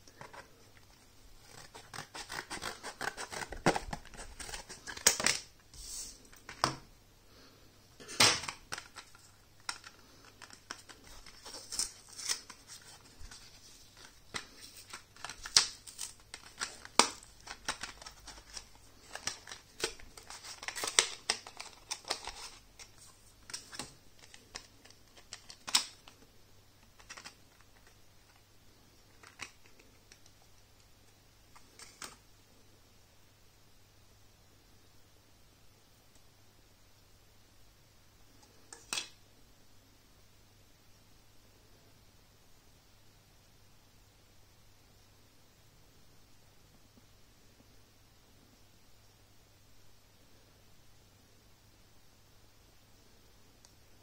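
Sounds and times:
plastic packaging crackling: 8.0s - 26.2s.

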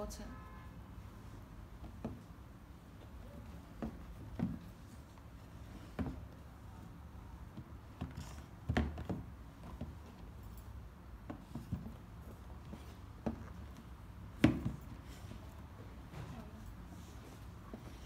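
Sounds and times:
shoes knocking on cardboard box: 3.7s - 4.9s, 7.5s - 10.2s, 11.2s - 15.3s.

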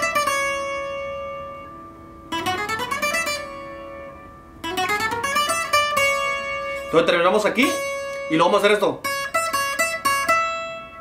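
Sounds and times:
acoustic guitar picked fast: 2.3s - 11.0s.

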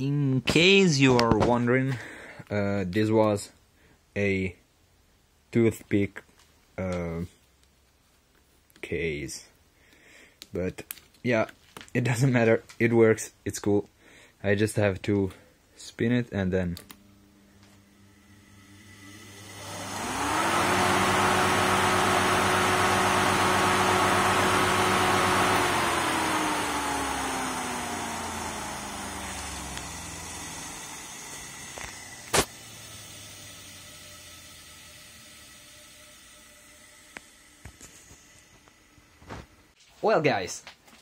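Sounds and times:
electric motor humming and whining: 17.0s - 39.8s.

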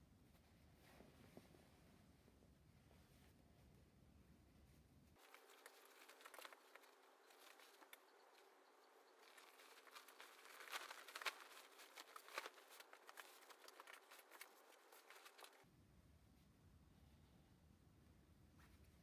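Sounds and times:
fabric rustling and crackling: 4.6s - 15.7s.

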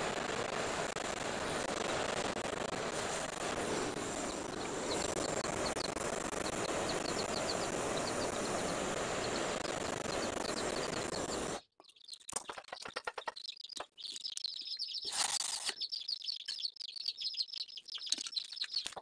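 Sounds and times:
gas torch hissing: 0.0s - 11.6s.

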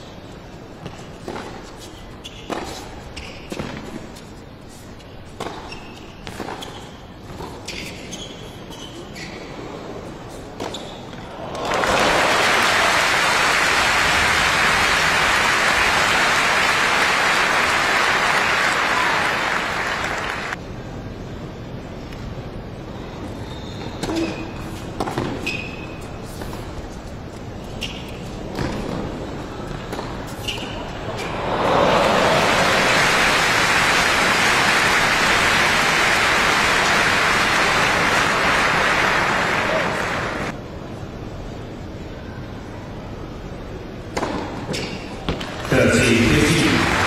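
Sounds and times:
crowd applauding: 11.4s - 20.6s, 31.3s - 40.5s, 45.7s - 47.0s.

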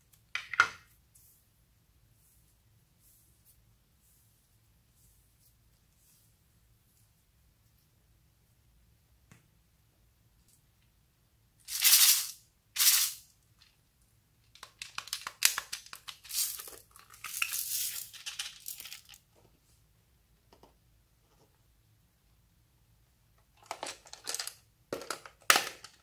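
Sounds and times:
short hissing bursts: 11.7s - 13.2s.

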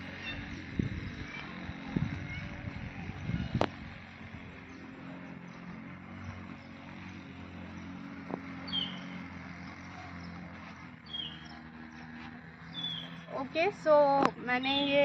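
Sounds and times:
steady low hum: 0.0s - 15.0s
falling bird chirps: 8.7s - 9.2s, 11.0s - 11.6s.

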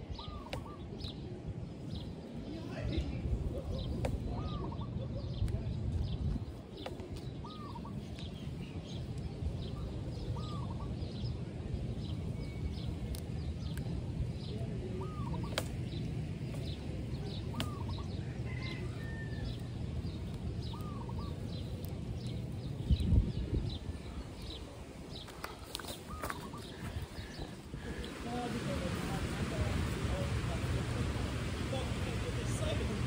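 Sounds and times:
steady low rumble: 0.0s - 33.0s
bird calling: 7.4s - 8.2s, 9.7s - 11.2s, 14.9s - 16.0s, 16.6s - 19.6s, 20.6s - 22.4s, 23.9s - 33.0s.

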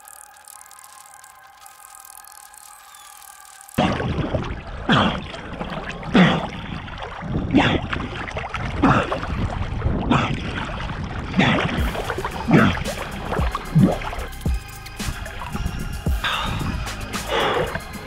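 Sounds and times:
swimming stroke splashes: 0.0s - 14.3s
continuous water wash: 0.0s - 18.0s.

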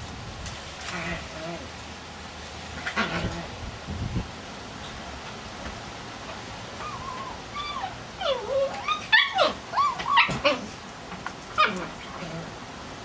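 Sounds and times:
huskies whining and yipping: 6.7s - 10.8s, 11.5s - 12.6s.

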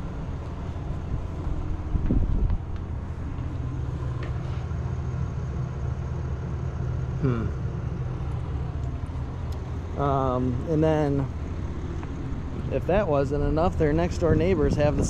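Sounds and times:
steady low hum: 0.0s - 15.0s
falling voice-like sound: 7.2s - 7.6s.

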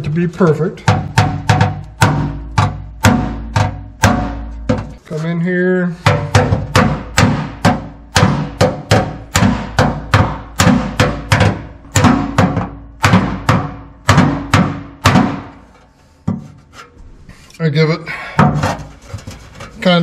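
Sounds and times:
hammer ringing on metal: 0.8s - 5.0s, 6.0s - 15.7s.

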